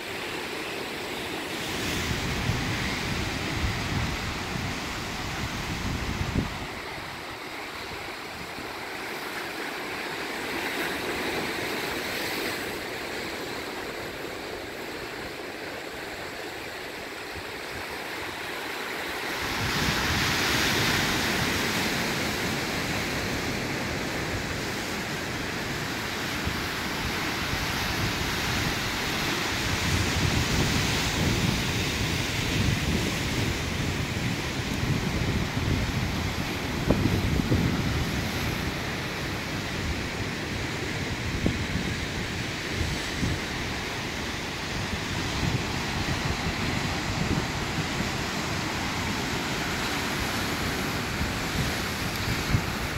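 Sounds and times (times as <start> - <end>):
wind rumble on microphone: 1.6 - 8.8, 19.4 - 52.9.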